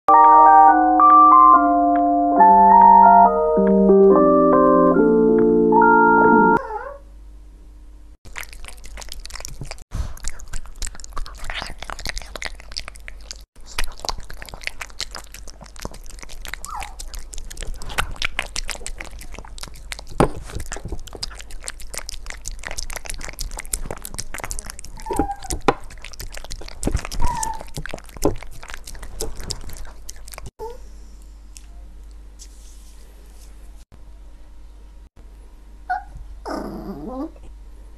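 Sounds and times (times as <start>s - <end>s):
squeaky notes: 0.1s - 6.6s
dog chewing and lapping: 8.3s - 30.5s.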